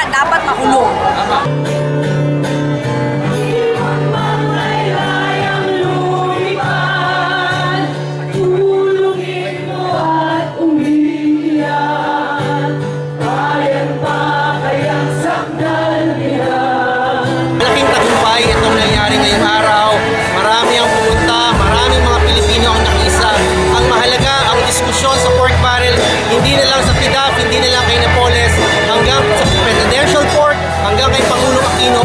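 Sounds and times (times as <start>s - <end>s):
group singing into microphones: 2.6s - 32.0s.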